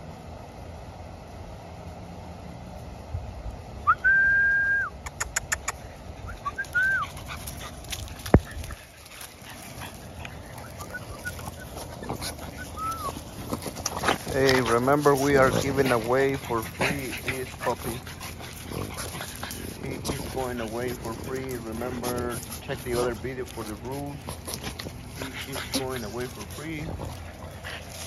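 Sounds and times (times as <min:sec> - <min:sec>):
sharp clicks: 0:05.0 - 0:05.8
puppies whining and whimpering: 0:06.2 - 0:28.0.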